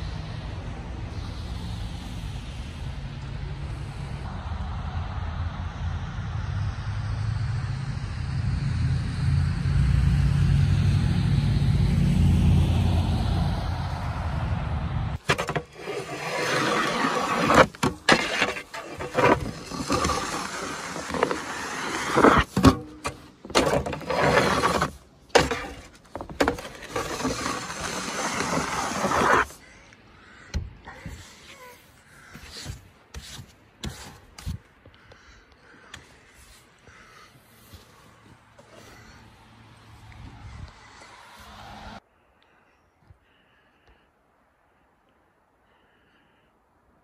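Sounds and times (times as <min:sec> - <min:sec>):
rumble of road traffic: 0:00.0 - 0:47.0
snow shovel scraping pavement: 0:15.2 - 0:29.6.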